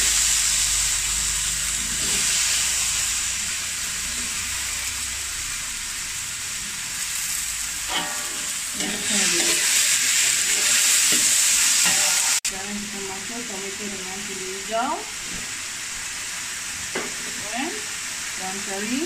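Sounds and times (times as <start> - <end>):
potatoes sizzling in oil: 0.0 - 19.0
metal spatula scraping wok: 1.7 - 2.9, 7.8 - 12.4.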